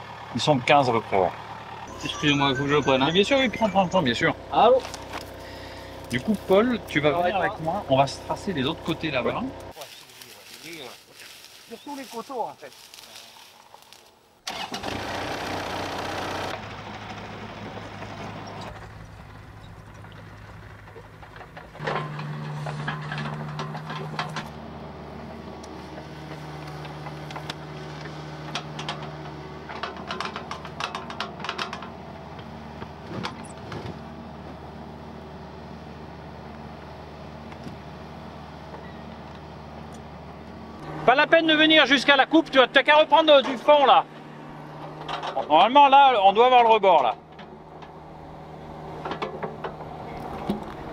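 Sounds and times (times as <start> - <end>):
excavator diesel engine running: 0.0 - 10.9, 14.5 - 50.9
digging clatter and knocking: 19.7 - 24.6, 26.6 - 32.0.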